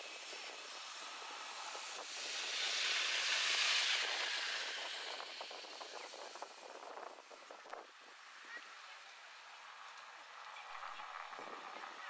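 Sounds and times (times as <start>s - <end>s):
jet engines rushing hiss: 0.0s - 7.8s.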